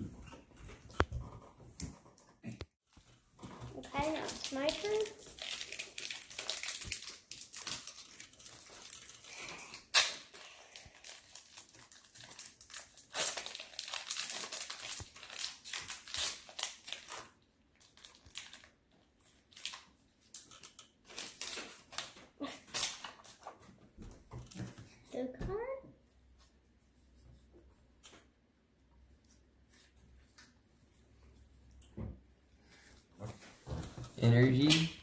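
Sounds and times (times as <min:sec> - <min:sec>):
foil wrapper crinkling and tearing: 0:03.7 - 0:23.5, 0:34.5 - 0:35.0.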